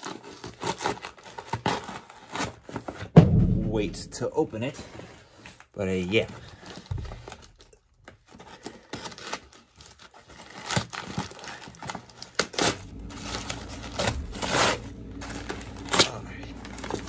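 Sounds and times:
plastic bag being torn open: 8.8 - 12.8.

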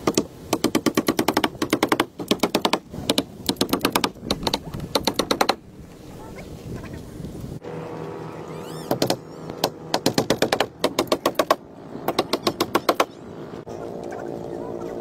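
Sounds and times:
steady low hum: 5.6 - 15.0.

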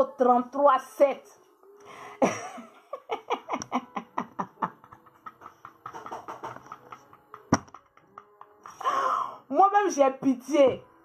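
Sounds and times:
woman laughing heartily: 2.2 - 7.4.

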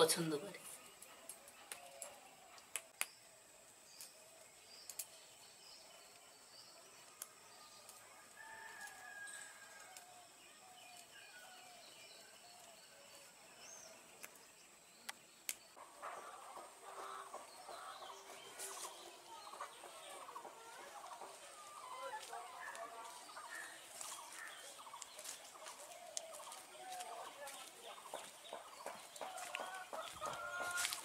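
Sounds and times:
birds calling: 0.0 - 31.0
chickens calling: 15.8 - 31.0.

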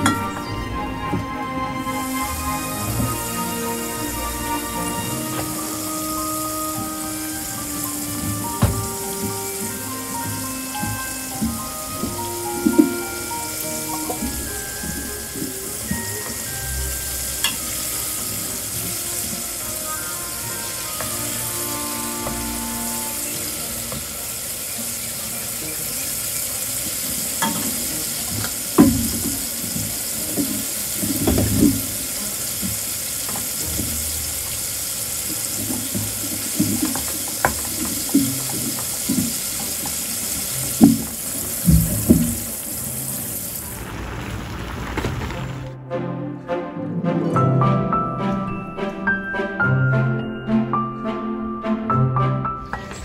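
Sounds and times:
chicken sizzling in a frying pan: 12.4 - 45.5.

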